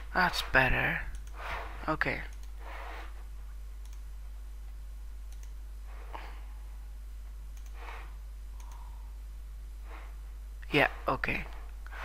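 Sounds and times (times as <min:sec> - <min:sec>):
steady low hum: 0:00.0 - 0:12.0
computer mouse clicks: 0:01.1 - 0:01.4, 0:02.2 - 0:02.6, 0:03.8 - 0:04.1, 0:05.3 - 0:05.6, 0:07.5 - 0:07.9, 0:08.6 - 0:08.9.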